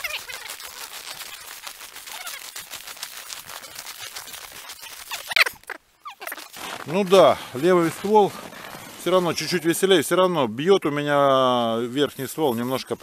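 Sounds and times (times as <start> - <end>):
footsteps crunching through snow: 0.0 - 10.0.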